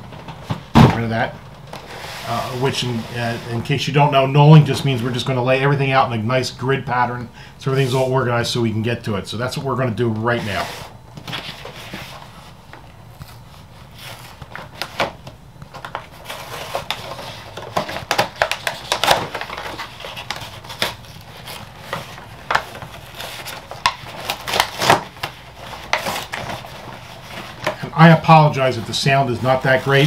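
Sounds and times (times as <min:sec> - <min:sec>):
plastic packaging crinkling: 0:13.2 - 0:30.0.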